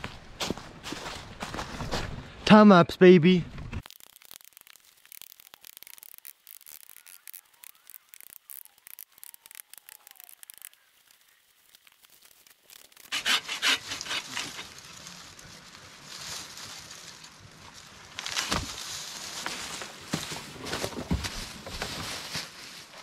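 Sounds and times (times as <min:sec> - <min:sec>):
branches snapping and crackling: 0:03.7 - 0:23.0
bow saw rasping through wood: 0:13.0 - 0:14.7.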